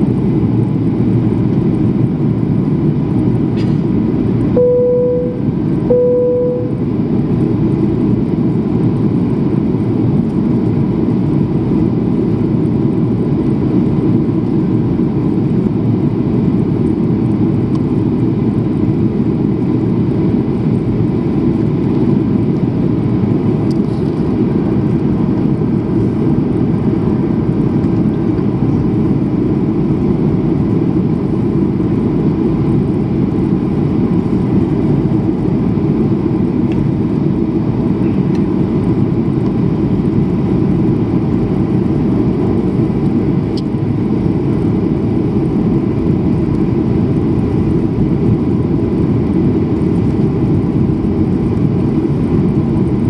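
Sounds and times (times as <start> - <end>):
jet engines and rushing air: 0.0 - 53.0
faint steady tone: 4.6 - 6.8.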